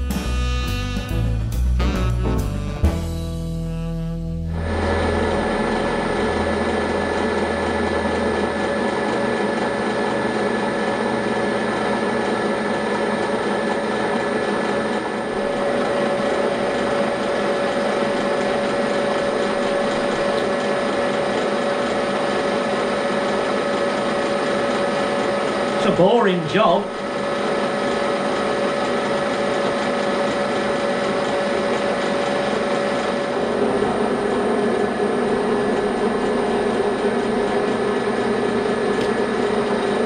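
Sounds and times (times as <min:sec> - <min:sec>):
milling machine whine: 0:00.0 - 0:40.0
metal cutting noise: 0:04.5 - 0:11.3.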